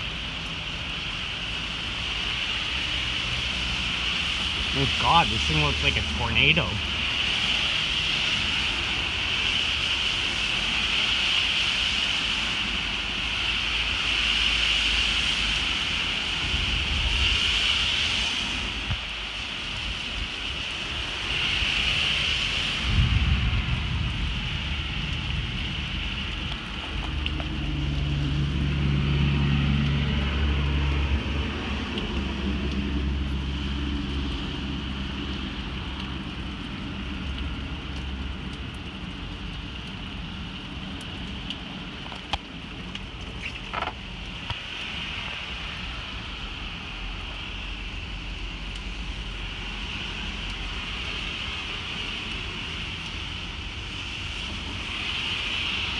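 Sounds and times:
steady rain: 0.0 - 55.9
wind hiss: 0.0 - 55.9
low thunder rumble: 22.2 - 33.1.

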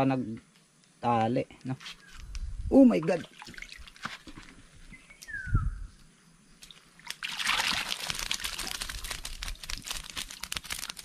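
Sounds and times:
water pouring and splashing: 2.9 - 4.6, 6.7 - 11.0.

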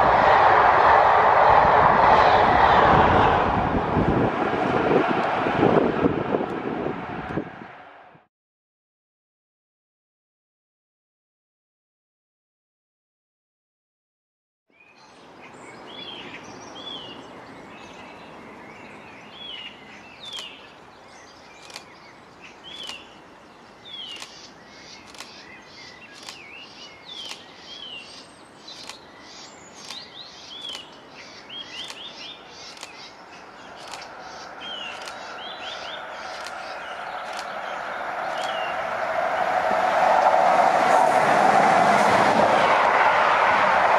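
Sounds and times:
outdoor background noise: 0.0 - 8.3, 14.7 - 43.9
train rumbling: 0.0 - 8.3, 21.6 - 21.8, 25.0 - 25.3, 33.5 - 43.9
small birds chirping: 15.0 - 38.8.

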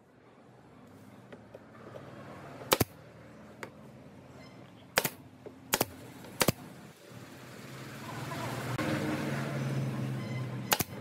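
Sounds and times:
vehicle engine humming: 0.0 - 11.0
nail gun firing into wood: 2.7 - 3.0, 5.0 - 6.6, 10.7 - 11.0.

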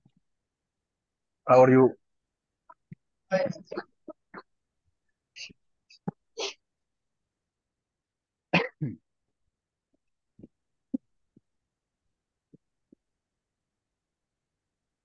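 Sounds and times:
person coughing: 8.6 - 9.0.

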